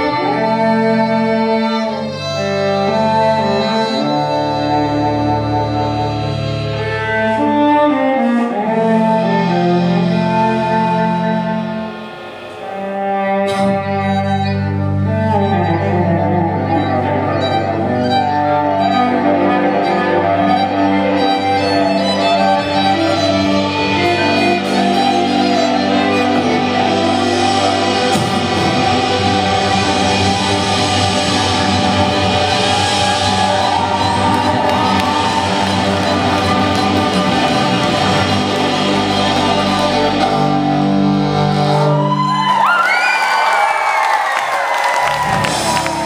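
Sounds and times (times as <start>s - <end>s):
rock band playing live: 9.4s - 41.7s.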